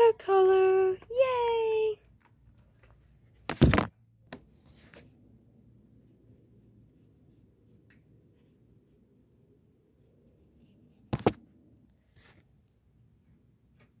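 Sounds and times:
paper rustling knock: 3.4s - 4.4s, 11.1s - 11.4s.

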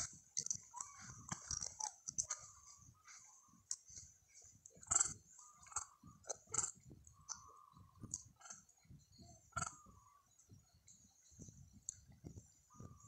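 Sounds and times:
monkey chewing food: 0.0s - 7.4s.

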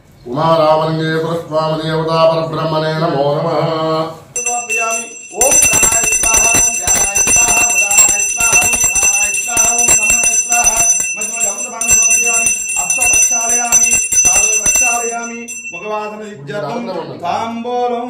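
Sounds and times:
bell ringing rapidly: 4.4s - 16.4s.

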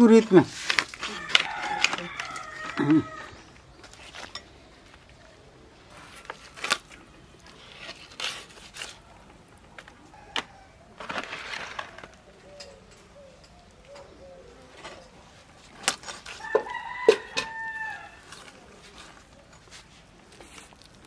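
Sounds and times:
rooster crowing: 1.0s - 3.6s, 10.1s - 11.0s, 16.3s - 18.8s.

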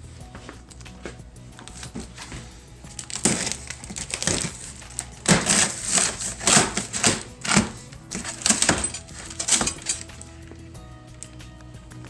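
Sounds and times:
cardboard and tape crunching: 1.7s - 10.3s.

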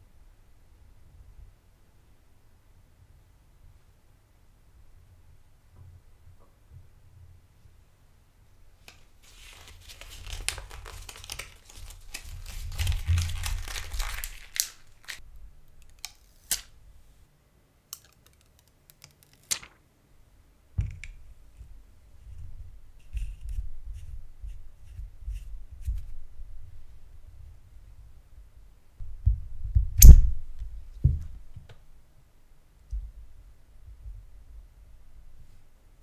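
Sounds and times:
paper crinkling and rustling: 8.8s - 15.2s, 18.2s - 19.8s.

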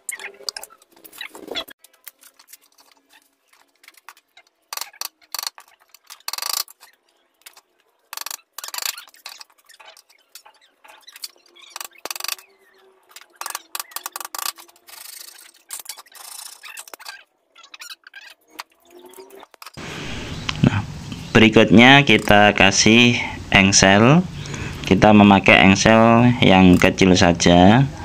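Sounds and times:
blade scraping bamboo: 0.3s - 12.5s, 13.1s - 17.2s.

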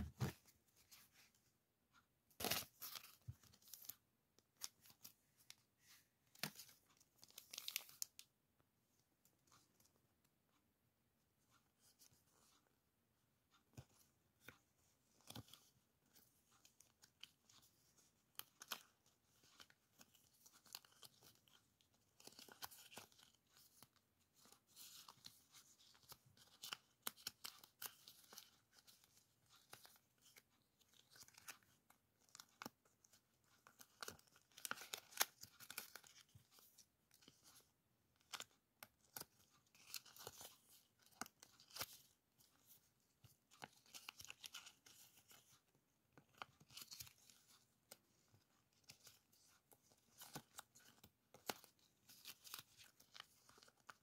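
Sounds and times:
plastic stickers crinkling: 15.2s - 54.0s.

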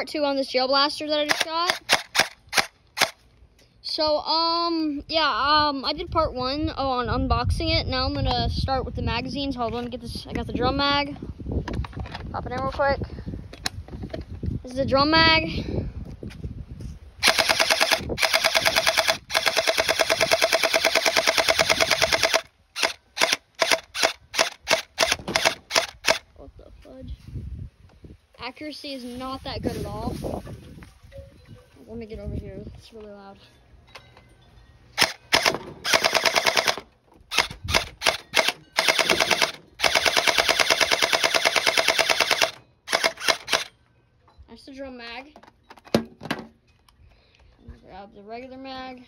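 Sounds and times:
gel blaster firing: 17.2s - 26.2s.

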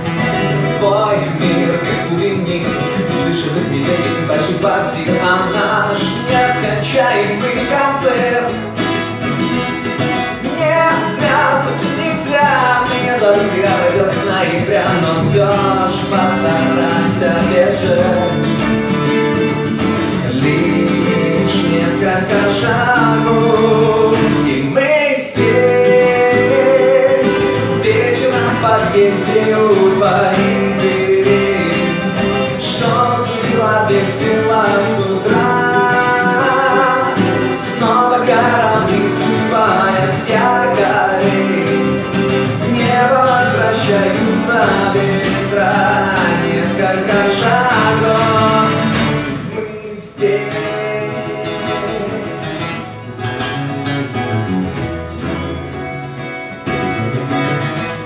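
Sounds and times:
man singing: 0.0s - 9.4s, 10.3s - 53.0s
acoustic guitars strummed: 0.0s - 58.0s.

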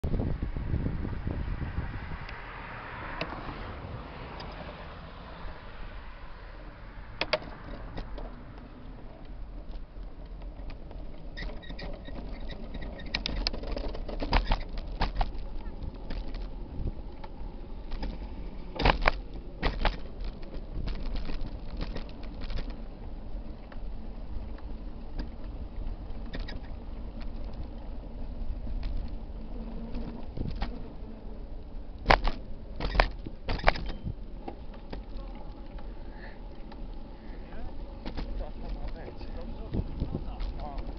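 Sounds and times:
bicycle tyres rumbling on paving: 0.0s - 40.9s
bicycle rattling over joints: 4.5s - 40.9s.

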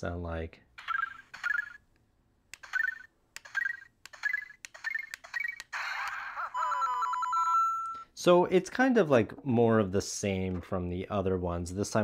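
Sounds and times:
game sound effects with sliding tones: 0.8s - 1.8s, 2.6s - 8.0s.

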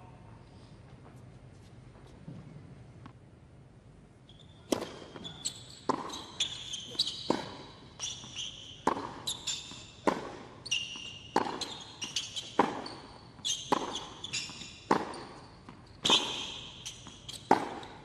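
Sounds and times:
shoes squeaking on court: 4.3s - 18.0s
racket striking tennis ball: 4.7s - 5.3s, 5.9s - 6.2s, 7.3s - 7.7s, 8.8s - 10.6s, 11.3s - 11.7s, 12.4s - 13.0s, 13.6s - 17.9s
tennis ball bouncing: 4.7s - 18.0s.

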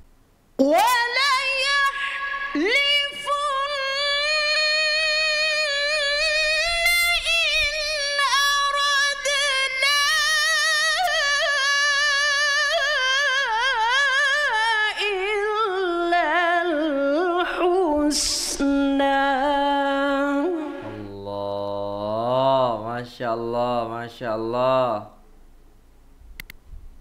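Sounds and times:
woman chanting into a microphone: 0.6s - 21.3s.

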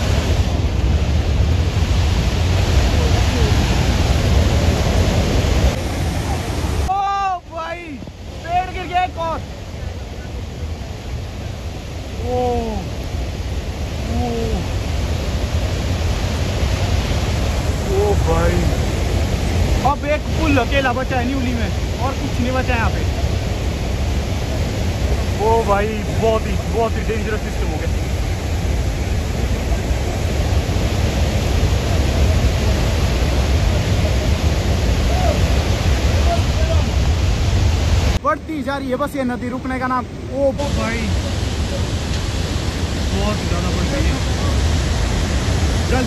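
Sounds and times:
river water rushing: 0.0s - 46.0s.

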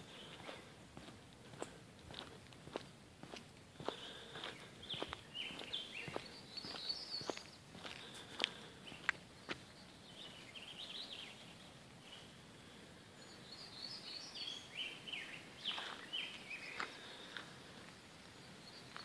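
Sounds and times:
faint steady hiss: 0.0s - 19.0s
songbirds singing: 0.0s - 19.0s.

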